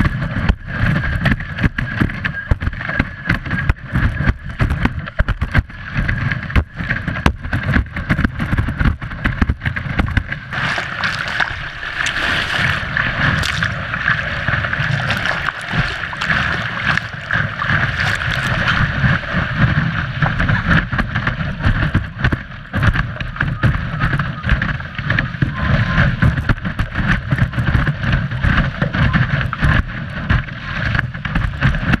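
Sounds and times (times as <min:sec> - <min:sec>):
hull slapping on water: 0:00.0 - 0:32.0
wind buffeting microphone: 0:00.0 - 0:32.0
water rushing and spraying: 0:09.7 - 0:21.8.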